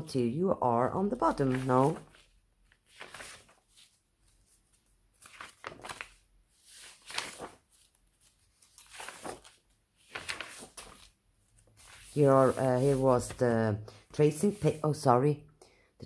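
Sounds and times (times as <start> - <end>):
paper rustling and crinkling: 1.2 - 13.6.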